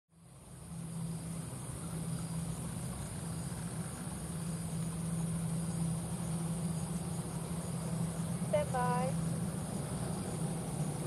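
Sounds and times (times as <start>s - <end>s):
distant jet engines humming: 0.2s - 11.0s.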